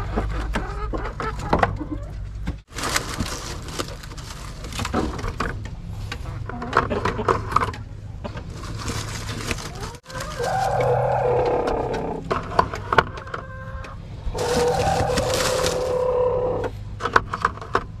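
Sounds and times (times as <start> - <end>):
hands rustling dry straw: 8.4 - 11.7, 14.3 - 16.7.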